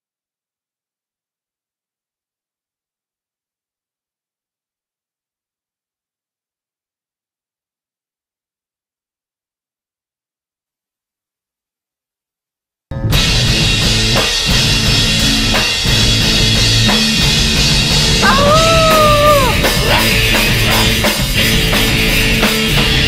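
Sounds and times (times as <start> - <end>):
drum kit with crashing cymbals: 13.0 - 23.0
electric guitar: 13.0 - 23.0
singer holding wordless note: 18.2 - 21.0.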